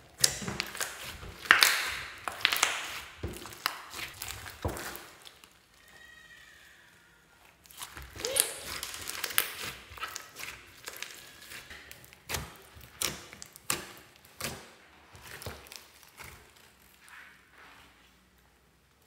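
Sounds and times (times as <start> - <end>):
slime squelching: 0.0 - 6.4, 7.4 - 17.5
sticky slime pops: 0.2 - 5.4.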